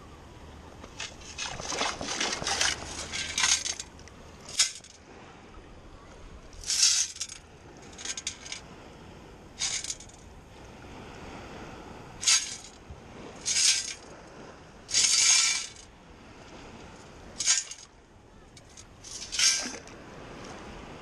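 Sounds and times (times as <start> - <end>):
sand scoop rattling in water: 0.8 - 5.0, 6.6 - 8.7, 9.6 - 10.2, 12.2 - 14.2, 14.9 - 15.9, 17.3 - 17.9, 18.6 - 19.9.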